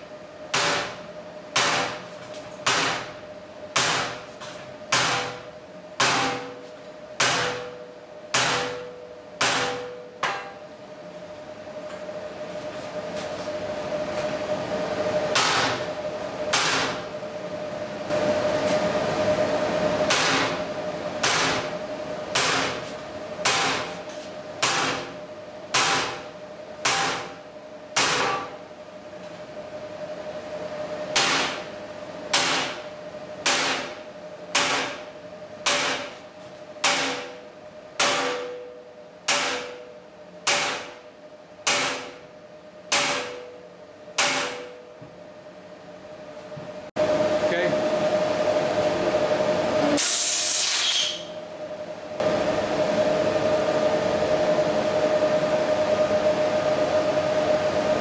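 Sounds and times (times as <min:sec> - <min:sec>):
hammer striking metal: 0:07.2 - 0:10.6, 0:36.8 - 0:37.3, 0:38.0 - 0:40.9, 0:41.6 - 0:42.2, 0:42.9 - 0:43.6, 0:44.2 - 0:44.9.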